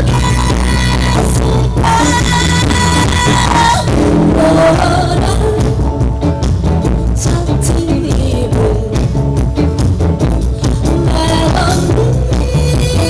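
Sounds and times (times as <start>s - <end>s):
double bass line: 0.0s - 13.0s
electric guitar: 0.0s - 13.0s
small live band playing: 0.0s - 13.0s.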